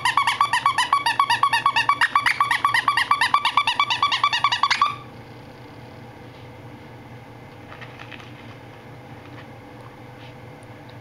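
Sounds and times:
puppy yapping: 0.0s - 5.1s.

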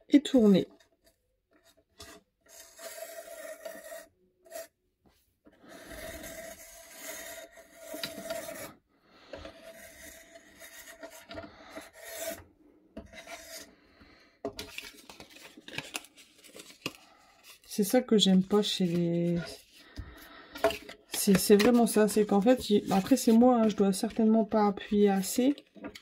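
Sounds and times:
blade scraping through paper: 2.5s - 4.7s, 5.6s - 8.8s.

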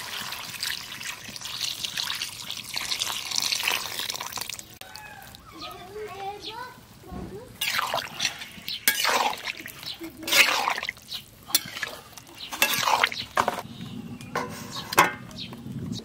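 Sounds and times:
spatula stirring wet gravy: 7.6s - 13.6s
steel plate clinking on pan: 8.8s - 9.3s, 11.5s - 13.6s, 14.4s - 15.2s.

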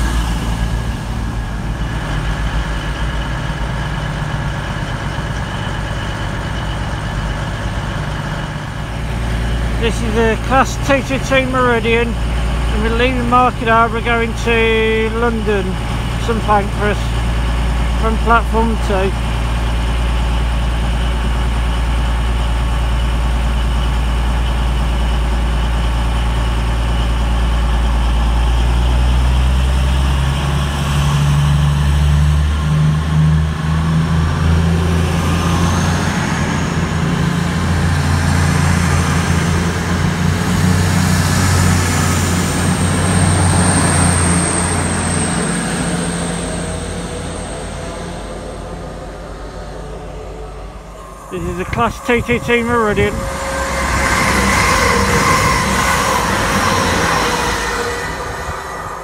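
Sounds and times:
diesel train engines revving: 0.0s - 59.0s.

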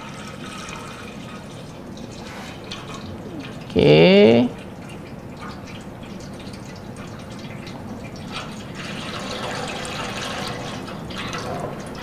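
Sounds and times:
water pouring into metal pot: 4.8s - 12.0s.

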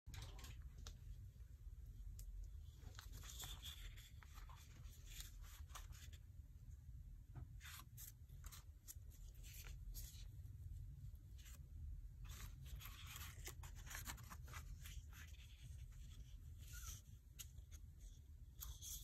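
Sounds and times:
low steady hum: 0.1s - 19.0s
paper pages rustling: 2.6s - 6.2s, 12.2s - 19.0s.

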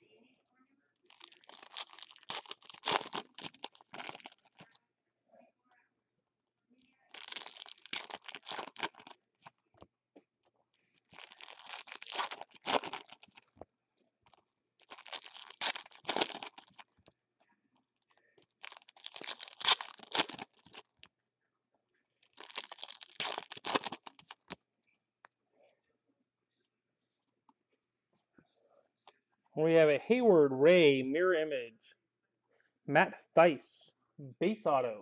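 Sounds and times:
foil wrappers tearing and crinkling: 1.1s - 4.6s, 7.1s - 9.2s, 11.1s - 13.5s, 14.8s - 16.9s, 18.6s - 21.0s, 22.3s - 24.6s.

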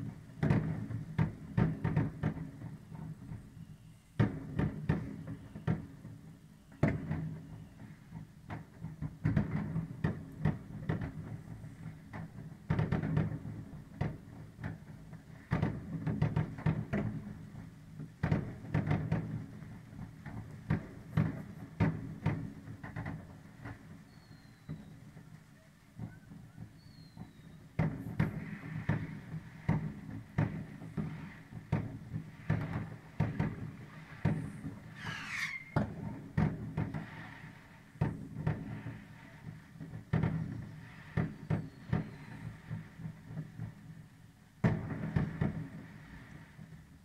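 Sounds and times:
fireworks bangs: 0.0s - 47.0s
firework whistle: 3.0s - 4.3s, 5.0s - 8.1s, 24.0s - 25.2s, 26.0s - 27.8s, 33.7s - 36.2s, 37.0s - 38.0s, 40.4s - 43.1s.

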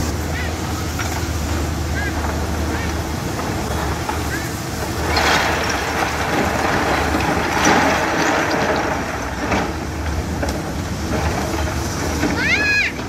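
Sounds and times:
bucket pushing through rock: 0.0s - 13.0s
excavator diesel engine: 0.0s - 13.0s.

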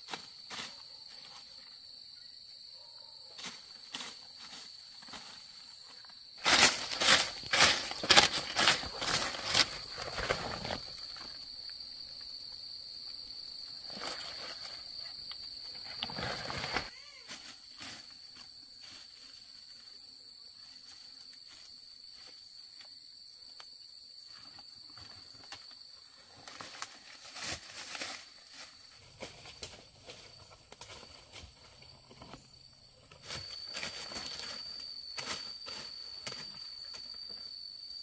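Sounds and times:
high-pitched insect call: 0.0s - 38.0s
steps through dry vegetation: 6.3s - 11.2s, 26.6s - 32.0s.

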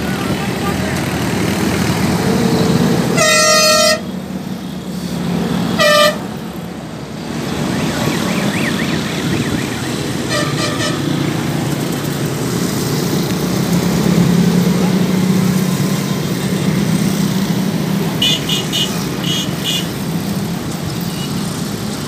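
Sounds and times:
road traffic: 0.0s - 22.0s
vehicle horn honking: 3.1s - 4.1s, 5.7s - 6.3s, 8.3s - 11.2s, 18.2s - 19.9s.

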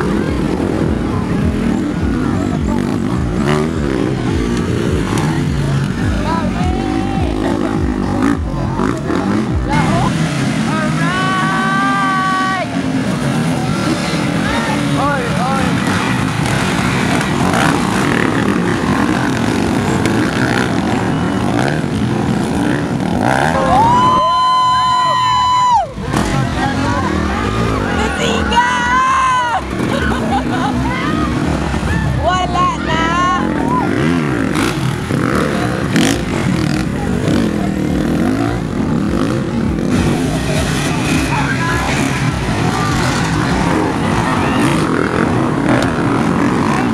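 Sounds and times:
dirt bike engines revving: 0.0s - 46.9s.

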